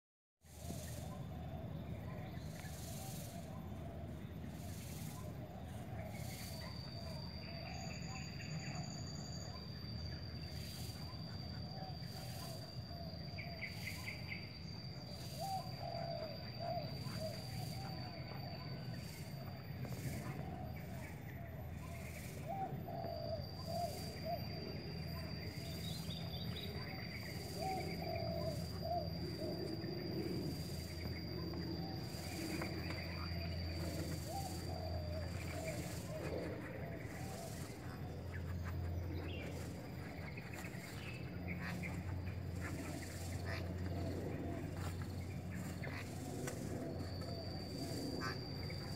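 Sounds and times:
steady low hum: 0:00.4 - 0:48.9
thin high whine: 0:00.4 - 0:48.9
doves cooing: 0:00.5 - 0:48.9.

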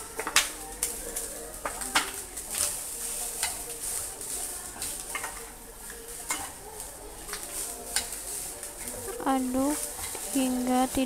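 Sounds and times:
rice sizzling in a frying pan: 0:00.0 - 0:11.0
wooden spatula scraping a pan: 0:01.2 - 0:11.0.

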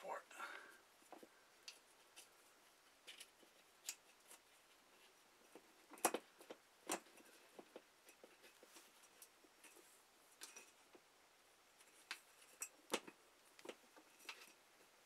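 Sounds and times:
glass globe clicks and scraping: 0:10.4 - 0:10.8.

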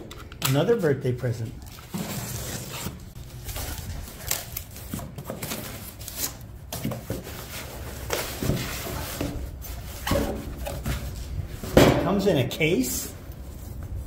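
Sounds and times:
cardboard rustling and scraping: 0:01.6 - 0:12.2.

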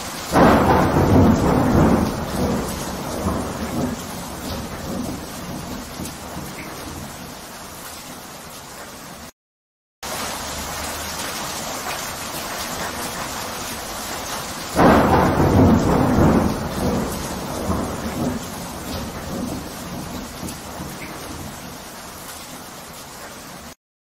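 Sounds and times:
rain hiss: 0:00.0 - 0:09.3, 0:10.0 - 0:23.8
thunder clap rumbling: 0:00.1 - 0:07.3, 0:14.7 - 0:21.8.

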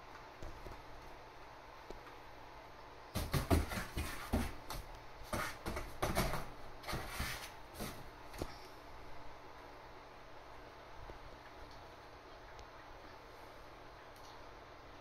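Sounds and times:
knocks on cardboard box: 0:03.2 - 0:06.5
cat scratching cardboard box: 0:03.2 - 0:08.1.

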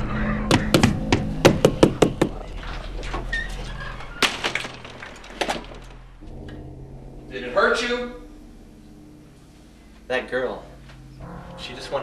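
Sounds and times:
low steady drone: 0:00.0 - 0:12.0
sharp knocks: 0:00.5 - 0:02.4.

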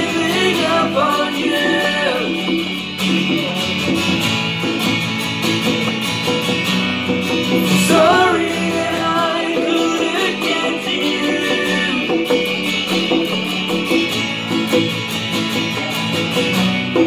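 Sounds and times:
man singing: 0:00.0 - 0:04.0, 0:07.6 - 0:12.8
acoustic guitar strumming: 0:00.0 - 0:17.0
conga drums: 0:00.0 - 0:17.0.

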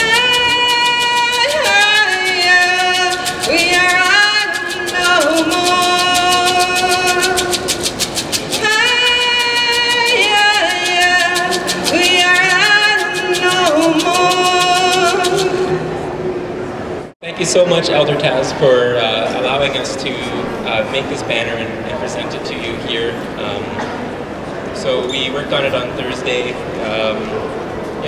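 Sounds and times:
fast percussion beat: 0:00.0 - 0:15.8
woman singing into microphone: 0:00.0 - 0:16.0.

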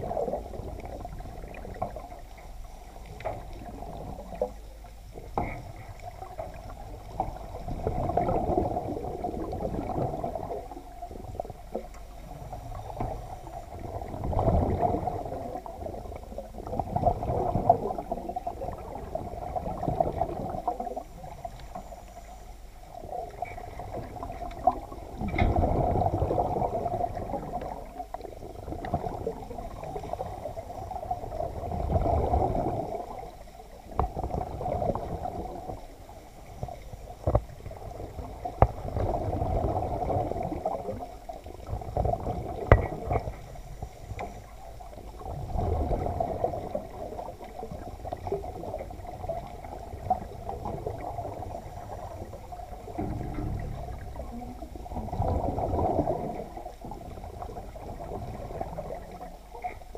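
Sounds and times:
underwater bubbling: 0:00.0 - 0:59.9
sharp knocks: 0:53.0 - 0:55.1.

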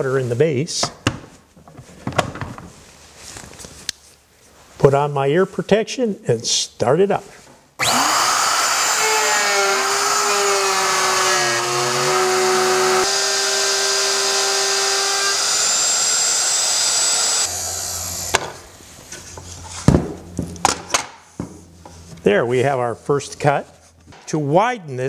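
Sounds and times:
router cutting wood: 0:07.8 - 0:18.7.

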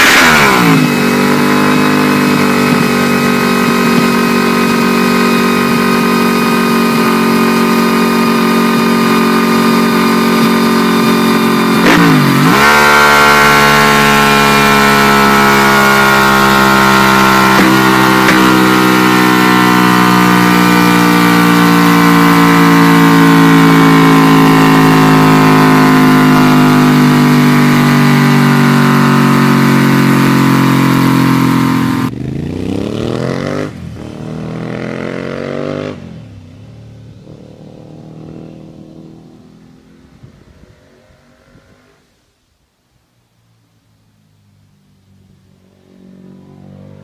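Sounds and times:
engine revs falling: 0:00.0 - 0:36.4
motorcycle engine revving hard: 0:00.0 - 0:40.0.

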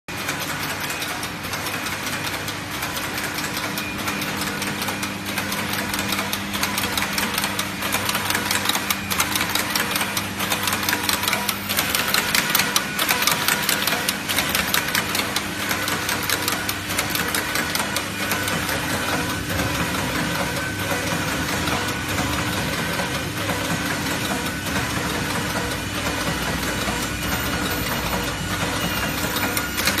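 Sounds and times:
steady machine hum: 0:00.1 - 0:30.0.

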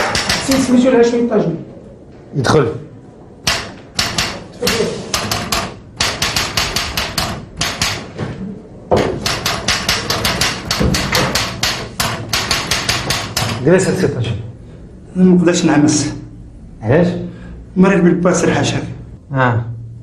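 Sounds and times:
rapid sharp hard clacks: 0:00.0 - 0:00.8, 0:03.4 - 0:08.2, 0:09.0 - 0:13.9.

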